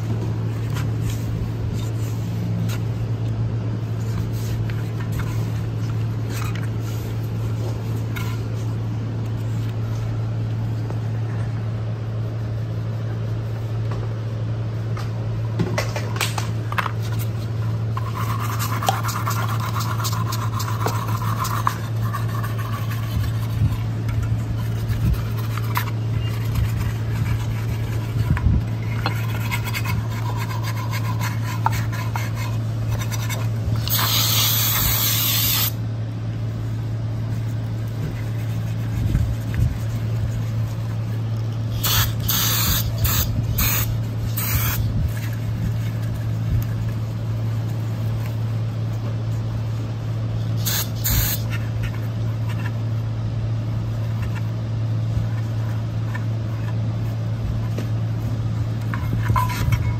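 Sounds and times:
steady low hum: 0.0 - 59.9
rag rubbing metal part: 17.9 - 35.7
aerosol spray hissing: 33.9 - 35.8, 41.8 - 44.8.

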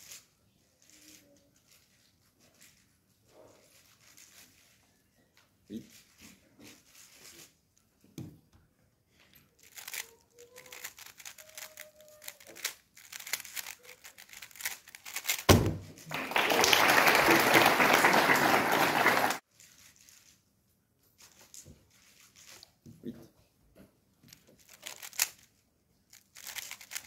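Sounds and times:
puzzle cube clicking and rattling: 9.4 - 16.1, 24.3 - 27.0
sharp knock: 15.5 - 16.0.

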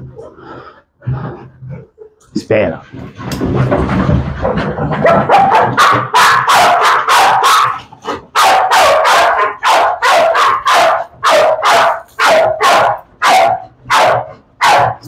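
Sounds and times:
dog barking rapidly: 4.9 - 15.0.

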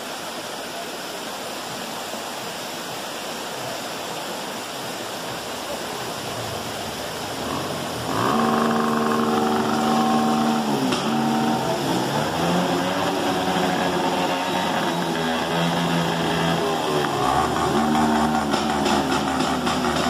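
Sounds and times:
waterfall and stream rushing: 0.0 - 20.0
engine humming: 6.3 - 20.0.

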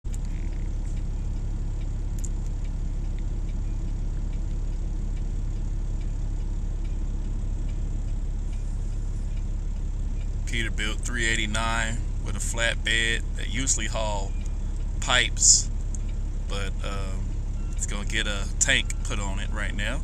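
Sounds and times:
truck engine idling: 0.0 - 20.0
faint light ticks: 0.1 - 10.4, 14.3 - 15.0, 15.7 - 16.3.

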